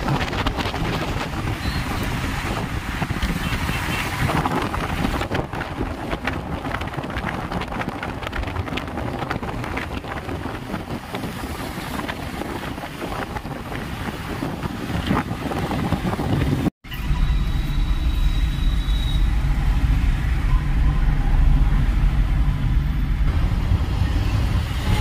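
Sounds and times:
wind buffeting microphone: 0.0 - 16.7
road and traffic noise: 0.0 - 25.0.

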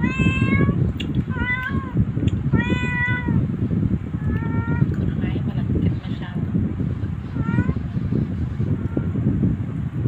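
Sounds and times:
cat meowing: 0.0 - 3.5, 4.2 - 4.9, 7.3 - 7.9.

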